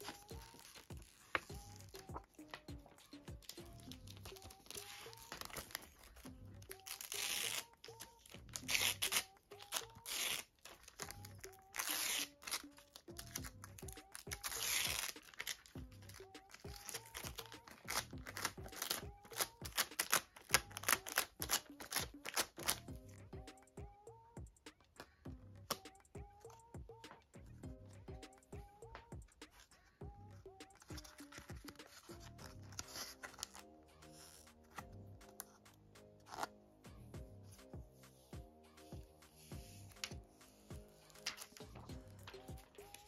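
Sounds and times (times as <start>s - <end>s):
plastic film crinkling and tearing: 0.0s - 2.6s, 3.4s - 22.8s
soft background music with beat: 0.0s - 43.0s.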